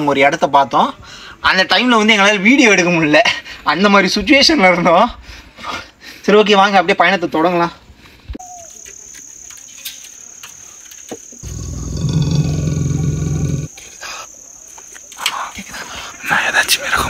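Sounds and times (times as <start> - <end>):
insects buzzing: 8.4 - 16.6
person snoring: 11.4 - 13.7.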